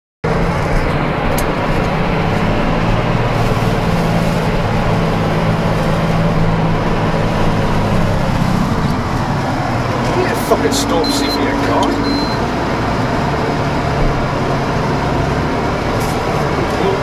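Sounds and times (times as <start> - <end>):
diesel engine running under load: 0.2 - 17.0
plough pushing through snow: 0.3 - 12.3.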